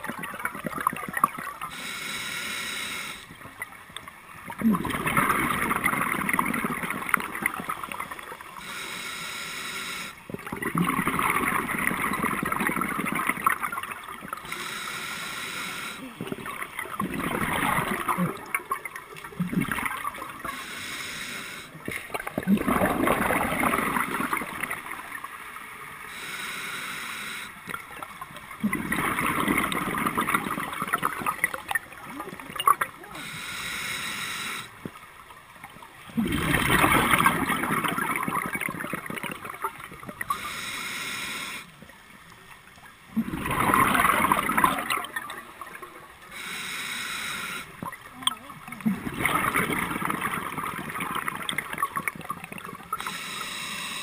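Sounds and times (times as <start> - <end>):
diver breathing underwater: 1.7 - 3.3, 8.6 - 10.2, 14.3 - 16.2, 20.3 - 21.9, 26.0 - 27.6, 33.1 - 34.8, 40.2 - 41.8, 46.3 - 47.8, 53.0 - 54.0
faint hiss: 1.7 - 3.4, 8.5 - 10.2, 14.4 - 16.3, 20.4 - 22.1, 25.7 - 27.8, 33.0 - 35.0, 40.2 - 42.5, 46.2 - 48.0, 52.9 - 54.0
exhaled bubbles rushing: 4.4 - 8.4, 10.3 - 14.4, 16.2 - 20.5, 22.0 - 25.4, 27.7 - 33.0, 36.1 - 40.3, 43.1 - 46.1, 48.6 - 53.0.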